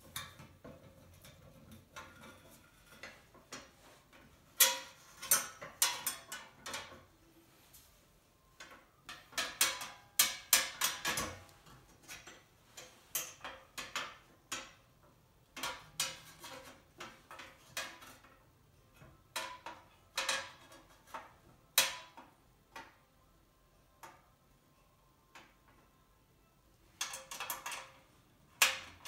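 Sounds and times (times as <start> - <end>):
metal parts clicking and clinking: 4.5 - 7.1, 26.9 - 29.0.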